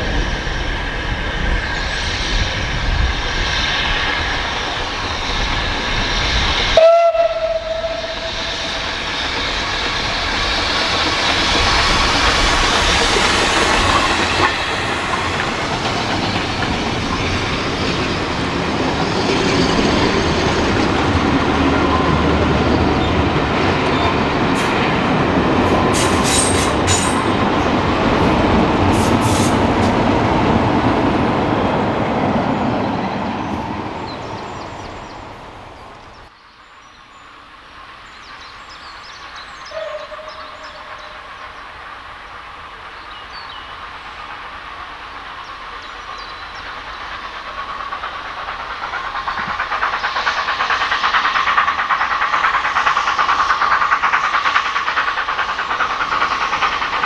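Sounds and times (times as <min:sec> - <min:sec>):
train rumbling and rattling past: 0:00.0 - 0:57.0
train horn: 0:06.8 - 0:08.6, 0:39.7 - 0:41.2.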